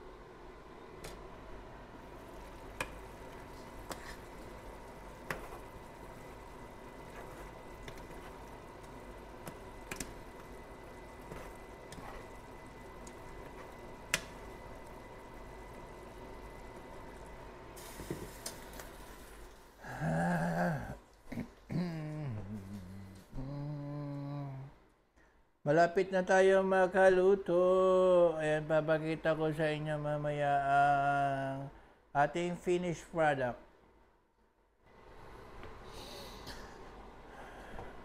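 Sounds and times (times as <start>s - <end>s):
sauce simmering and bubbling: 2.0s - 20.8s
person humming: 19.8s - 24.8s.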